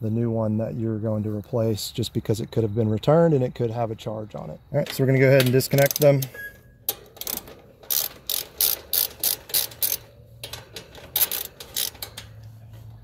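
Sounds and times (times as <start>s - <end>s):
socket ratchet clicking: 4.9s - 6.3s, 6.9s - 12.5s.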